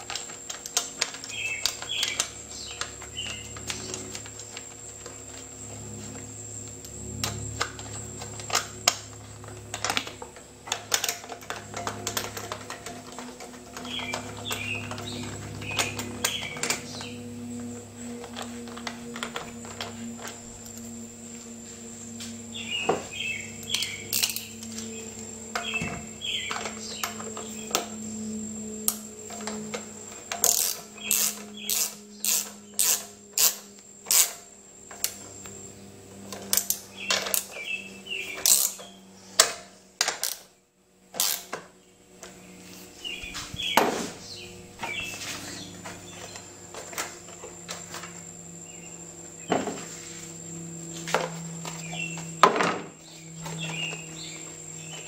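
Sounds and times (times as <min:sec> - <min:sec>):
ratchet clicking: 0:23.6 - 0:24.8, 0:30.2 - 0:35.2, 0:38.3 - 0:38.9, 0:41.1 - 0:41.6.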